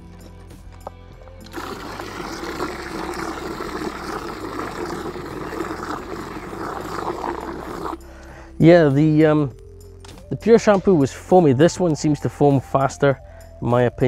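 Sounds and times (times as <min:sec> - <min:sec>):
water jet splashing into bucket: 0:01.4 - 0:08.0.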